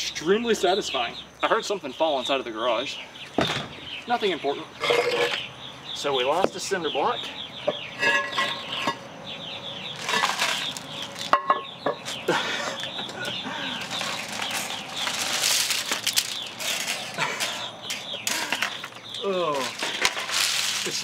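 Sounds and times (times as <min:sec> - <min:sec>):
birds chirping: 0:00.0 - 0:21.0
plastic pieces and weights clattering: 0:10.0 - 0:11.6, 0:13.7 - 0:21.0.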